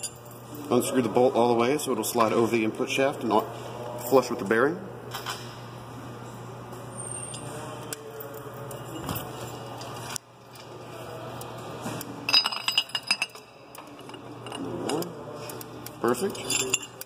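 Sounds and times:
low steady hum: 0:00.0 - 0:17.0
metal bearing puller clinking: 0:16.1 - 0:17.0.

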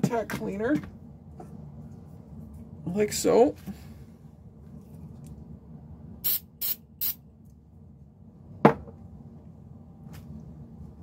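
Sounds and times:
aerosol spray hissing: 0:06.2 - 0:07.2.

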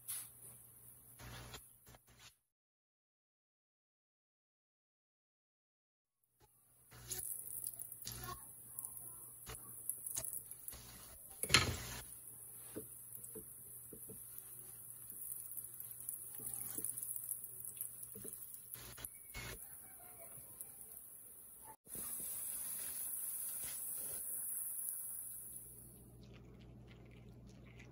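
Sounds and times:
hot oil sizzling: 0:06.9 - 0:26.2.

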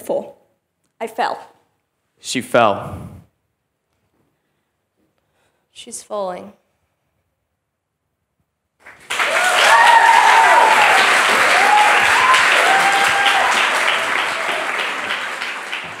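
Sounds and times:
audience applauding: 0:08.8 - 0:16.0
people cheering and whooping: 0:09.1 - 0:16.0.

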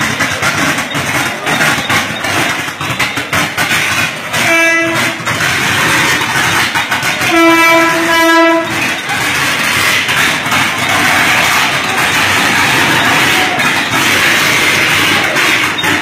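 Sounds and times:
train horn blasts: 0:04.3 - 0:05.3, 0:07.1 - 0:08.9.

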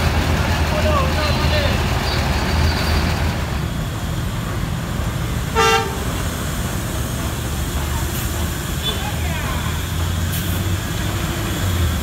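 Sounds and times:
vehicle horn toot: 0:05.6 - 0:06.0.

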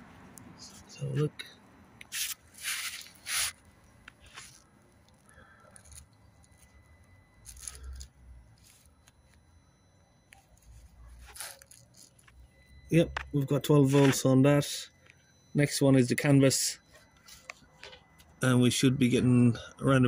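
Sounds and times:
scratchy rubs and scrapes: 0:02.1 - 0:03.6.

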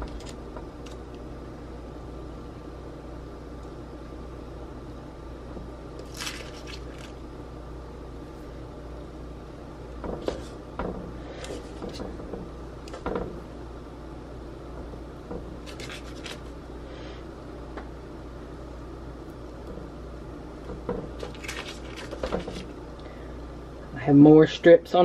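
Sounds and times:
steady low hum: 0:00.0 - 0:25.0
paper rustling: 0:06.0 - 0:07.2, 0:15.6 - 0:16.5, 0:21.2 - 0:22.7.

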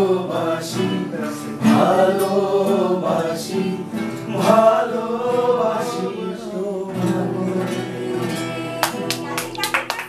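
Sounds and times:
person singing: 0:00.0 - 0:09.7.

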